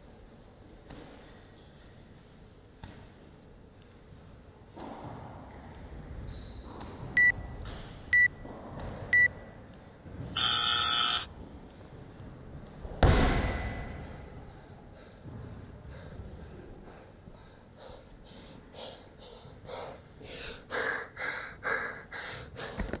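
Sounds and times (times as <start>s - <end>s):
person panting hard: 14.5s - 23.0s.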